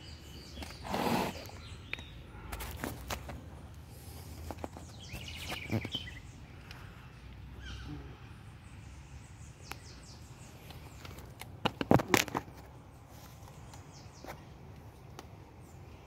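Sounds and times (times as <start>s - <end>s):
faint outdoor background: 0.0s - 16.0s
handling knocks and rustles: 2.5s - 6.0s.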